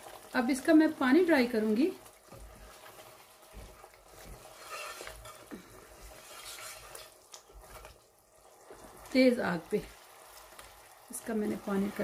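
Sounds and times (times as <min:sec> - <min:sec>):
faint sizzle: 0:00.0 - 0:12.0
spatula scraping pot: 0:02.3 - 0:08.0.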